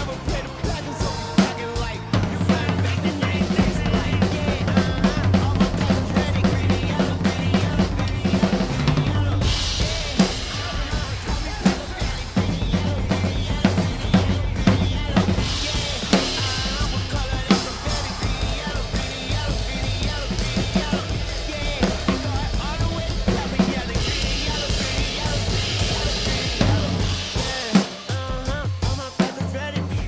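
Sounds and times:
backing music: 0.0 - 30.0
drum kit beat: 0.0 - 30.0.

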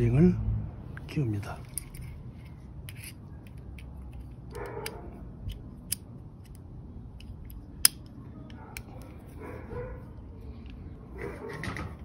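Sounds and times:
pistol parts clicking: 1.6 - 9.3.

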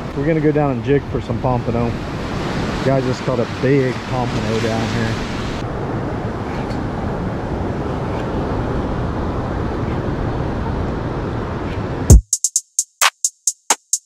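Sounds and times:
wind rumble on microphone: 0.0 - 12.1
surf breaking: 0.2 - 5.7
electronic drum beat: 12.1 - 14.0.

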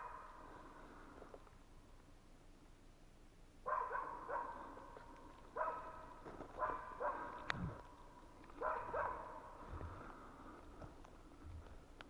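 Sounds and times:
dogs barking with echo: 0.0 - 0.6, 3.6 - 10.0.

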